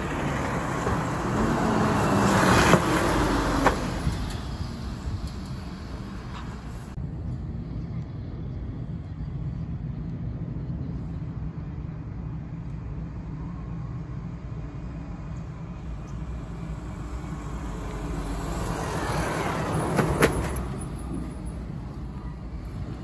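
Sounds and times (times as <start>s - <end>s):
heavy truck passing: 0.0s - 7.0s, 14.6s - 23.0s
low traffic rumble: 0.0s - 23.0s.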